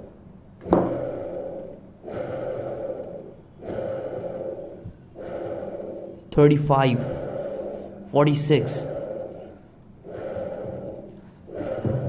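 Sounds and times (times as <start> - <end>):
electric motor armature whirring: 0.0 - 12.0.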